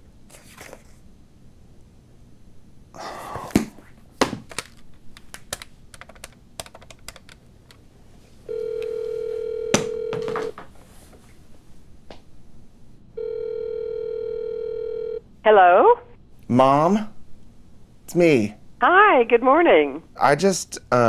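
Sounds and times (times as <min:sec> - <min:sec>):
telephone ringing tone: 0:08.5 - 0:10.5, 0:13.2 - 0:15.2.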